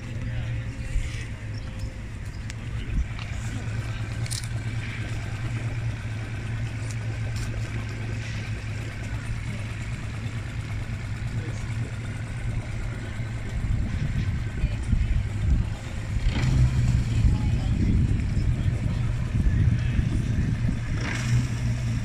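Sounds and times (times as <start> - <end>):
faint wavering whine: 0.0 - 16.2
low mechanical hum: 0.0 - 22.0.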